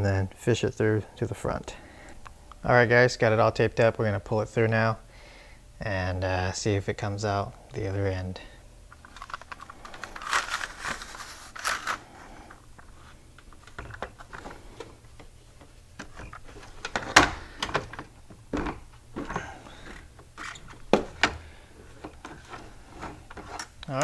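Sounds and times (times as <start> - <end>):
wire scraping against plastic: 9.0 - 14.9, 16.0 - 23.8.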